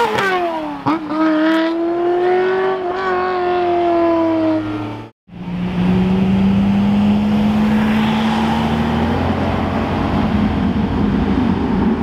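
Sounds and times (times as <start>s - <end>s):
car engines accelerating: 0.0s - 12.0s.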